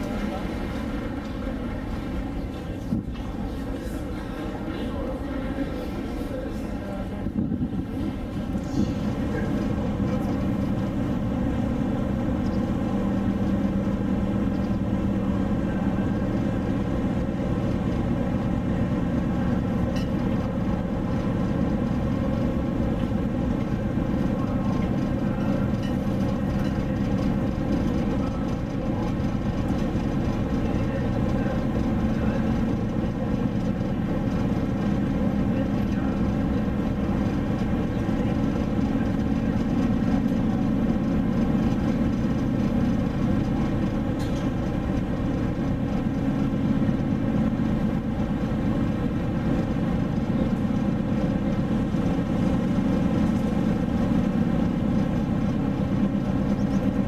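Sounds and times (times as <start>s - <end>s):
ship engines droning: 0.0s - 57.0s.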